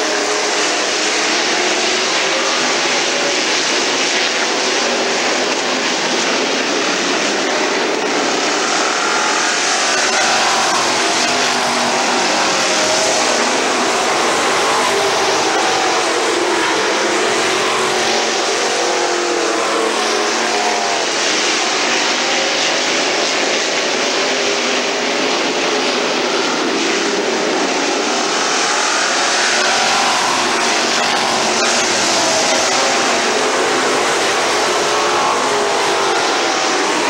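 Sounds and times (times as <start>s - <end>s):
race car engines at full throttle: 0.0s - 37.0s.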